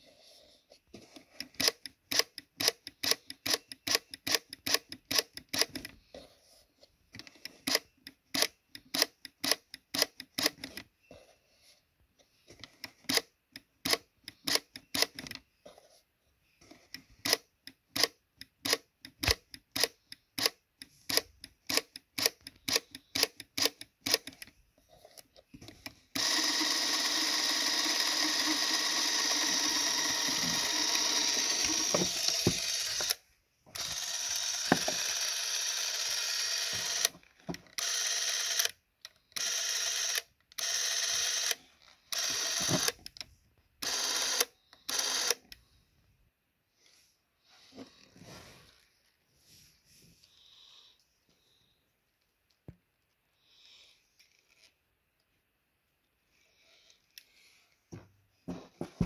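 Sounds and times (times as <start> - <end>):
camera film drive motor: 26.1 - 33.2, 33.8 - 37.1, 37.7 - 38.8, 39.4 - 43.0, 43.8 - 45.5
camera mechanical clicks: 36.1 - 37.1.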